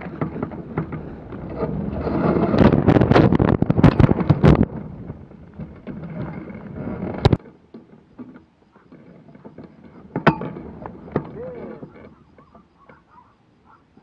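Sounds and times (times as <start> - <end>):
wind on microphone: 0.0 - 7.4.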